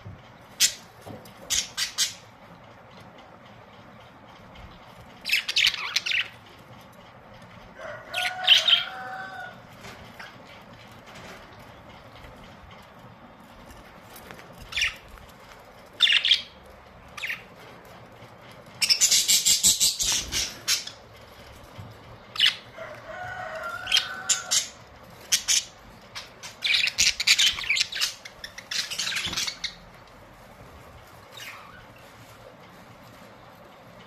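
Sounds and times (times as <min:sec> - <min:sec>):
budgerigars chirping and chattering: 0:00.6 - 0:02.2, 0:05.2 - 0:06.4, 0:16.0 - 0:16.6, 0:18.8 - 0:21.0, 0:23.8 - 0:29.9.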